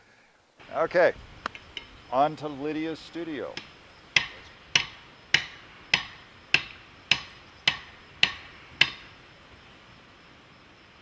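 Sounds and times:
hammer striking metal on anvil: 3.6s - 9.1s.

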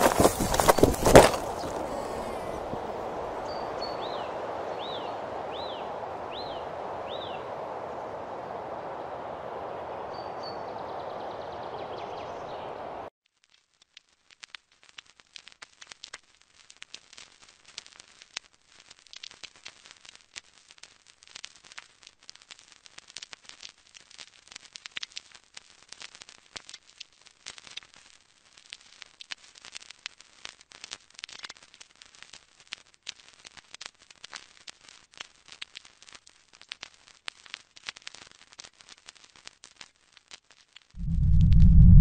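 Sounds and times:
static hiss with crackles: 0.0s - 42.0s
steady rushing noise: 41.0s - 42.0s.

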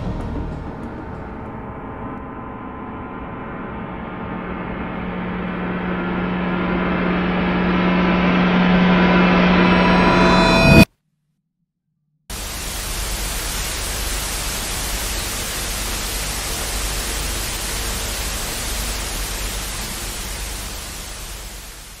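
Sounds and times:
tv static hiss: 12.3s - 22.0s.

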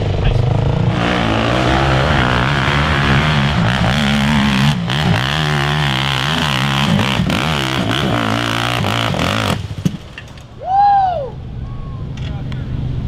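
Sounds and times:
quad engine revving hard: 0.3s - 9.8s.

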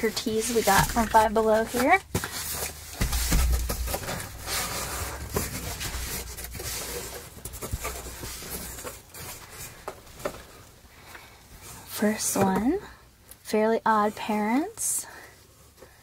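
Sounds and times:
cardboard flaps scraping: 0.0s - 10.6s
dull thump: 3.0s - 4.5s.

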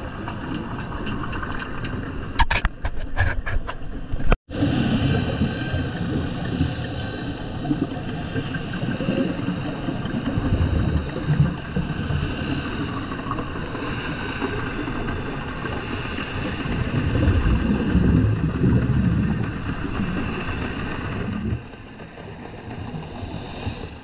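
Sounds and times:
underwater boat engine drone: 4.5s - 24.0s.

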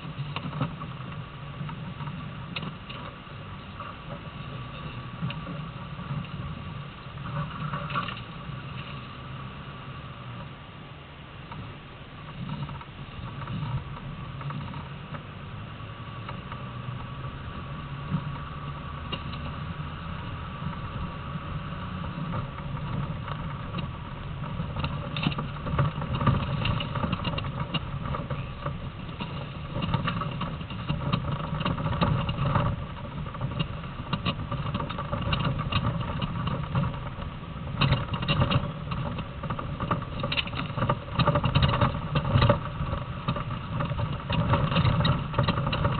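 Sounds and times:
engine drone inside vehicle: 0.0s - 45.9s
knocks and rattles: 20.2s - 45.9s.

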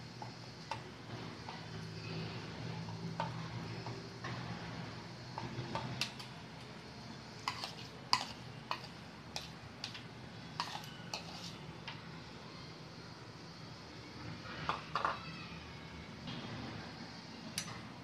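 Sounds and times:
metal spoon scraping plastic bowl: 7.4s - 10.0s, 10.6s - 11.6s.

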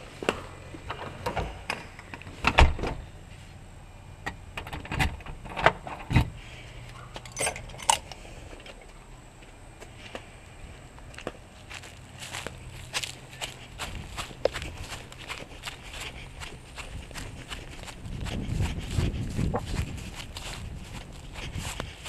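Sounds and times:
sharp metallic clinks: 7.2s - 8.2s.

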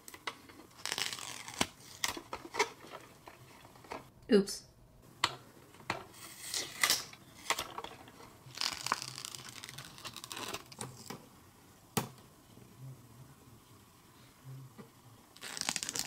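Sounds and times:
sticker sheet crinkling and tearing: 0.7s - 2.8s, 8.5s - 11.0s, 15.4s - 16.0s.

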